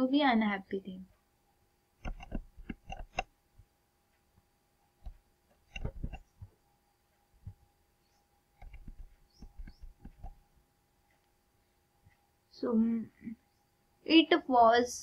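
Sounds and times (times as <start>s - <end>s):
light clicks and taps: 2.0s - 6.6s, 8.6s - 10.4s.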